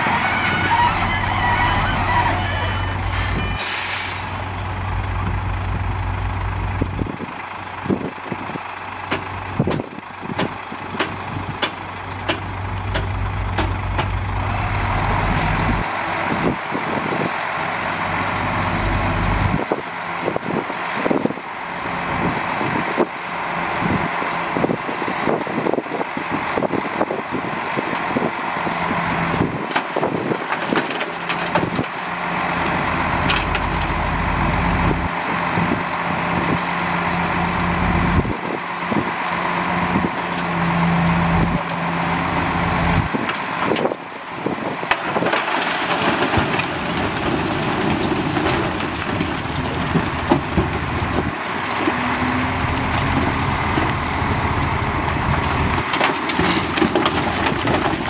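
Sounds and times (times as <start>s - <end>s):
diesel engines running: 0.0s - 58.0s
short air hiss: 3.6s - 4.4s
metal clanks and knocks: 9.1s - 14.3s.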